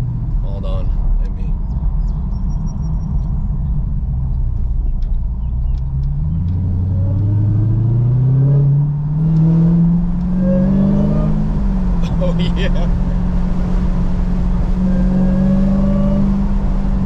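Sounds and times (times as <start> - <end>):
car engine rumbling and accelerating: 0.0 - 17.0.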